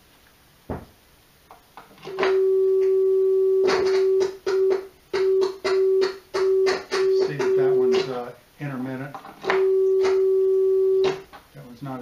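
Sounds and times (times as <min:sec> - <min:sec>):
speaker crackling: 0:02.0 - 0:11.4
steady pure test tone: 0:02.1 - 0:11.2.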